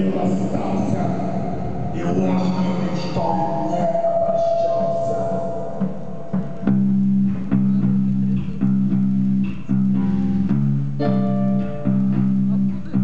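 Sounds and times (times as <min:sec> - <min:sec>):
rock music with bass and guitar riff: 0:04.4 - 0:13.0.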